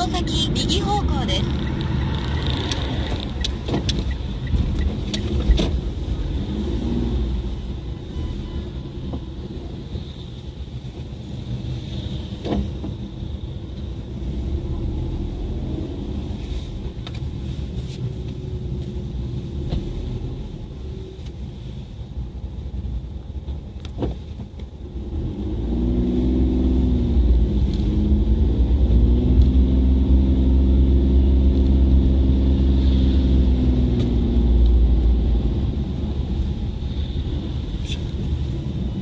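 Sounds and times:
road noise inside car: 0:00.0 - 0:39.0
car engine droning: 0:23.6 - 0:39.0.

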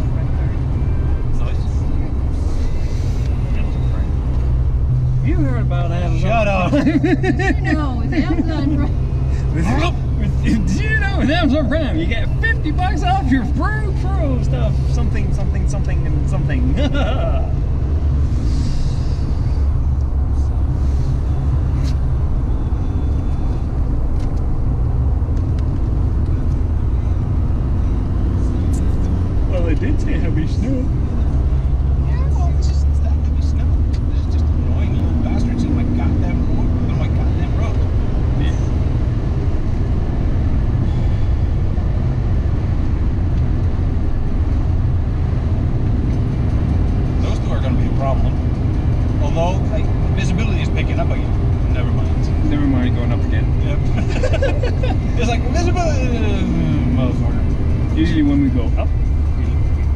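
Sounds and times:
car engine and tyre rumble: 0:00.0 - 0:59.9.

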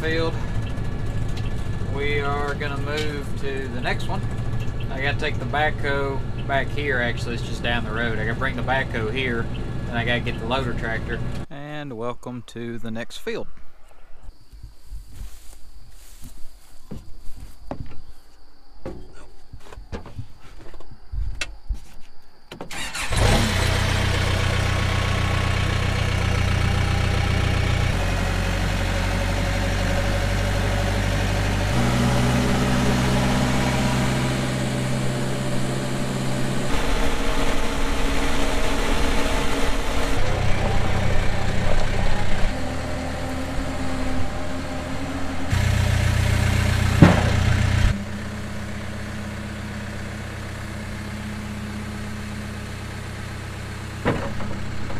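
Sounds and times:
diesel engine cranking and running: 0:00.0 - 0:11.5, 0:22.7 - 0:54.9.

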